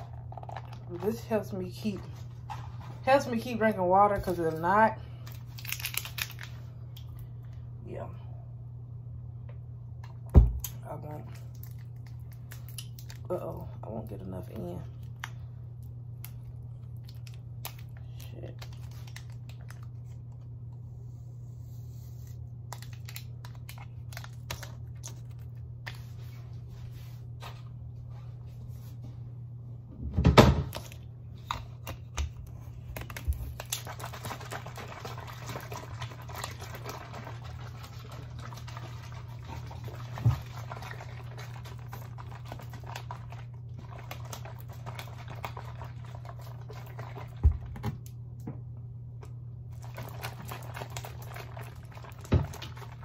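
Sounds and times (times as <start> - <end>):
water sloshing in plastic bottle: 30.7 - 48.1, 49.7 - 53.0.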